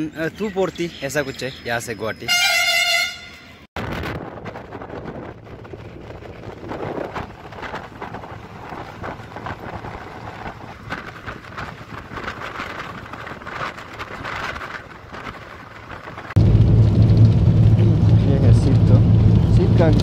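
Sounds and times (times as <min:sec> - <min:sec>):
bus wind and road noise: 0:00.0 - 0:20.0
low engine drone: 0:16.4 - 0:20.0.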